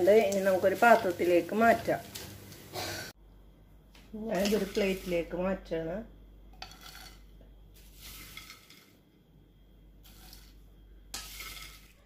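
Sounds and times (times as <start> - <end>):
spoon scraping onto plate: 6.6 - 9.0, 10.0 - 12.0.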